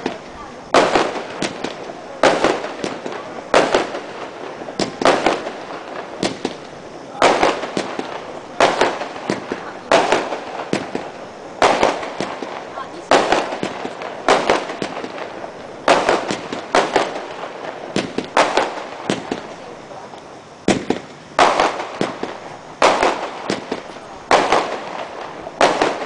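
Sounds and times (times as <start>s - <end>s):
fireworks bangs with echo: 0.0s - 26.0s.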